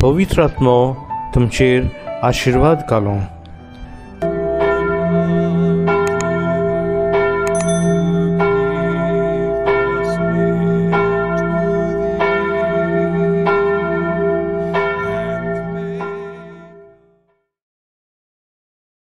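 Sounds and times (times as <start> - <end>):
church bell ringing: 4.2 - 17.3.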